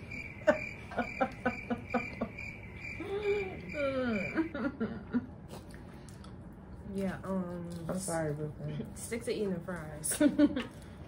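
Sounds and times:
crickets chirping: 0.0s - 4.6s
person laughing: 0.4s - 5.3s.

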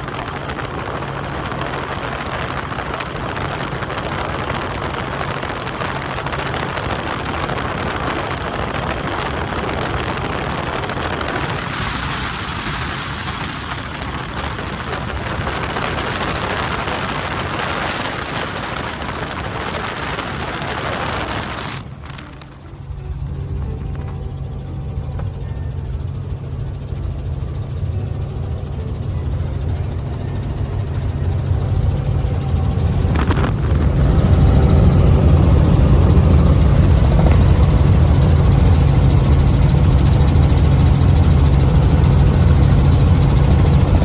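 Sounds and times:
wind rushing over microphone: 0.0s - 22.9s, 32.2s - 44.0s
helicopter rotor and engine drone: 0.0s - 44.0s.

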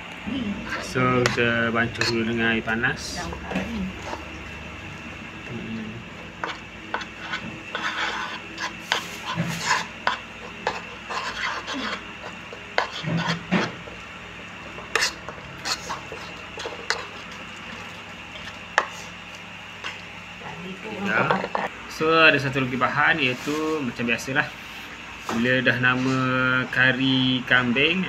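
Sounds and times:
spoon scraping bowl: 0.6s - 2.3s, 3.4s - 4.4s, 6.4s - 13.8s, 14.9s - 17.3s.

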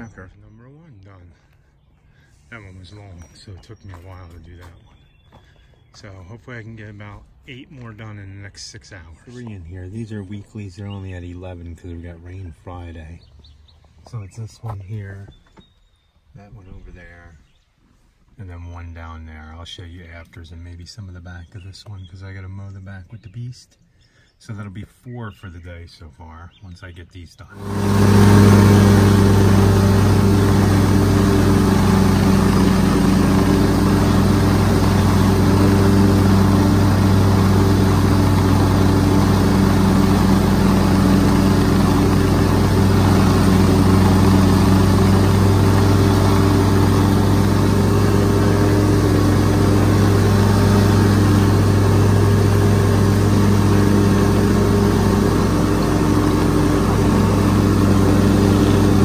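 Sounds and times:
lawn mower engine running: 0.0s - 0.4s, 27.6s - 59.0s.

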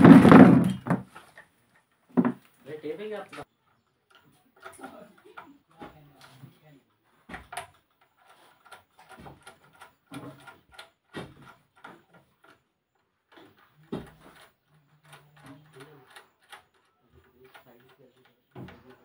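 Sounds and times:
clicks and knocks of wiring: 4.1s - 6.5s, 7.3s - 19.0s.

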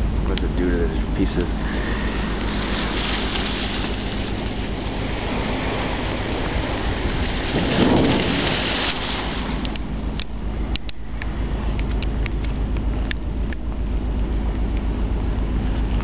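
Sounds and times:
low ship hum: 0.0s - 16.0s
ship crushing through ice: 1.6s - 10.0s.

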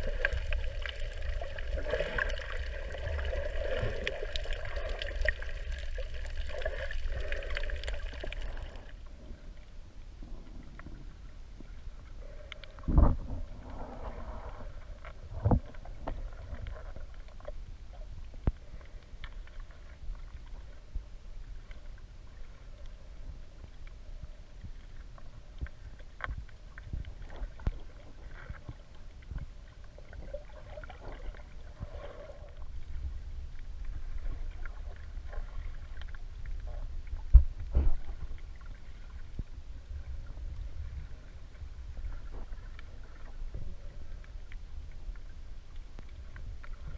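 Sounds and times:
low rumble of moving water: 0.0s - 46.9s
underwater knocks and clicks: 12.6s - 13.5s, 15.0s - 17.6s, 35.3s - 38.5s.

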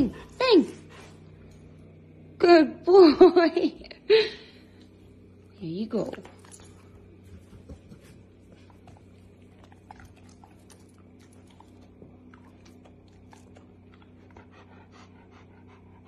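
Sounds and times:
low hum: 0.0s - 16.0s
dog chewing crunching: 6.2s - 14.5s.

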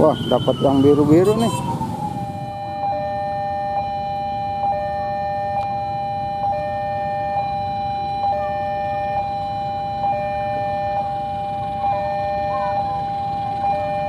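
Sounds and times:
level crossing warning alarm: 0.0s - 14.0s.

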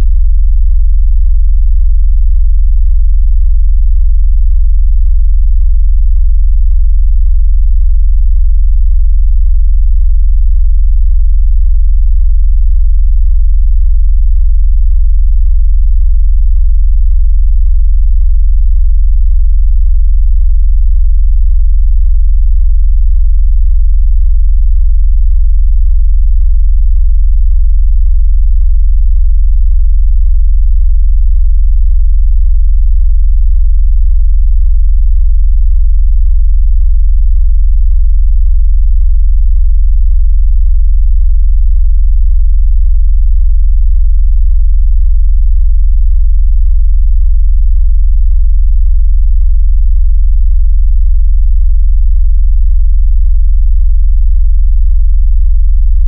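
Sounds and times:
deep electronic bass tone: 0.0s - 42.0s.

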